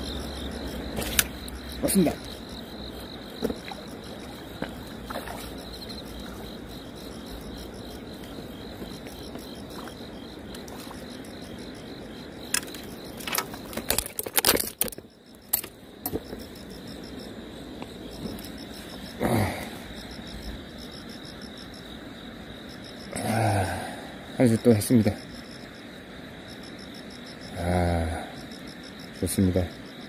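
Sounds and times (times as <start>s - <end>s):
high insect trill: 0.0s - 30.0s
fish splashing in water: 3.4s - 6.5s.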